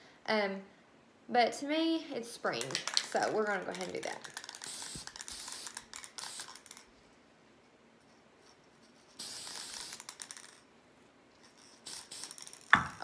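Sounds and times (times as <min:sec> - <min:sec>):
aerosol can spraying: 0:03.7 - 0:06.9, 0:09.2 - 0:10.5, 0:11.8 - 0:13.0.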